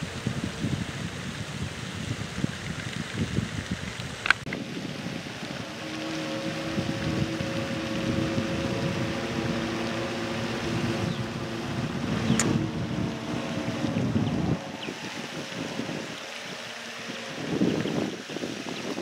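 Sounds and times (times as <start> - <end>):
wind rumbling on microphone: 0.0 - 19.0
steady motor hum: 4.6 - 19.0.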